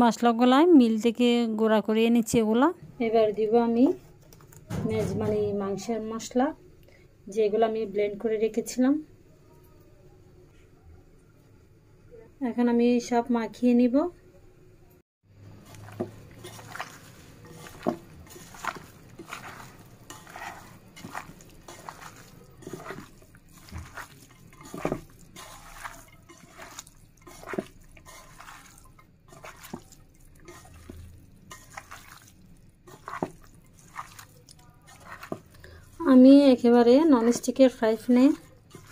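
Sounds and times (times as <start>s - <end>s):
hand squelching raw meat: 15.5s - 36.2s.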